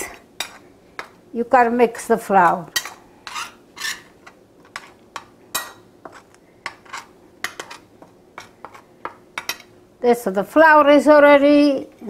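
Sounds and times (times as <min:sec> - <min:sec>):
metal spoon scraping a plate: 0:02.8 - 0:09.6.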